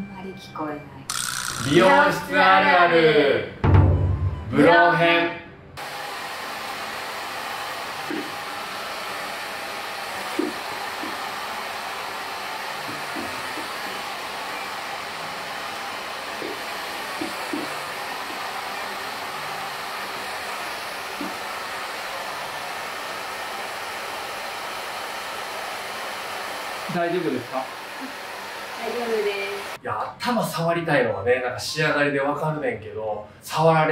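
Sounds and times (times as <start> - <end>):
hair dryer running: 5.8 - 29.8.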